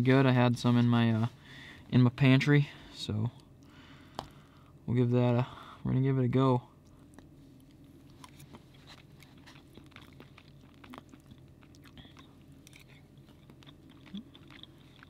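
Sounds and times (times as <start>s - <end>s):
person chewing: 6.8s - 15.0s.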